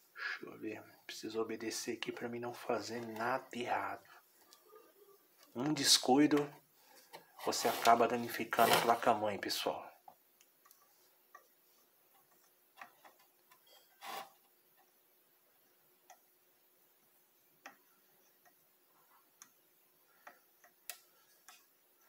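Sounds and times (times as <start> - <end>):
small clicks and taps: 16.0 - 16.3, 17.6 - 18.6.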